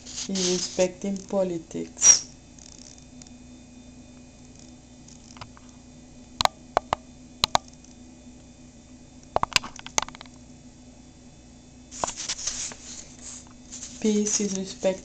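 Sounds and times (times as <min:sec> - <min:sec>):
paper page turning: 0:00.0 - 0:00.8, 0:12.0 - 0:14.9
faint steady hum: 0:00.0 - 0:15.0.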